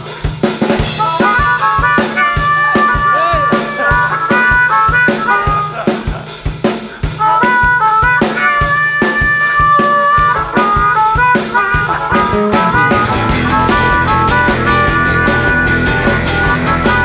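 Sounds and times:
bass: 0.0 - 17.0
drum kit: 0.0 - 17.0
amplified harmonica: 0.8 - 17.0.

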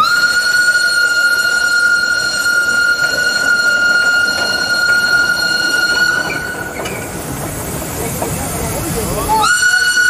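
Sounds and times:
steam locomotive whistle: 0.0 - 7.2, 9.3 - 10.0.

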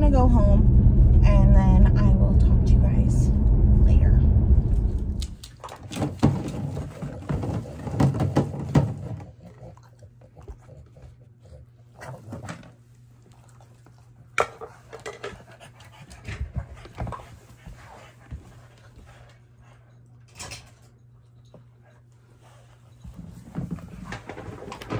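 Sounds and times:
plastic bin clattering: 5.7 - 9.2
dog sniffing and breathing: 9.0 - 20.2.

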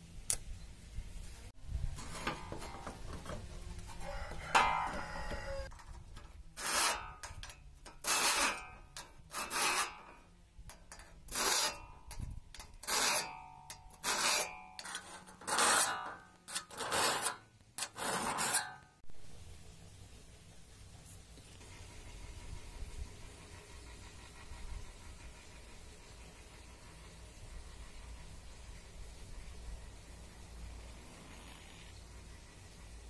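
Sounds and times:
file rasping on saw teeth: 6.6 - 18.8.

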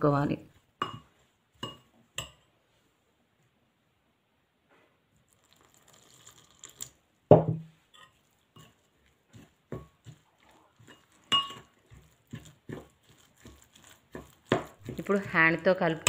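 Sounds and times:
spoon scraping and clinking bowl: 0.8 - 2.5, 7.8 - 15.4
water pouring into a bowl: 5.3 - 7.0.

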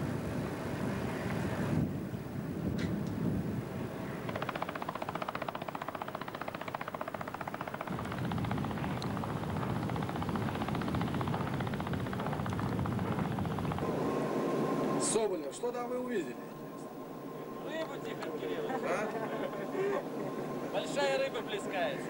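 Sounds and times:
ship machinery drone: 3.3 - 22.0.

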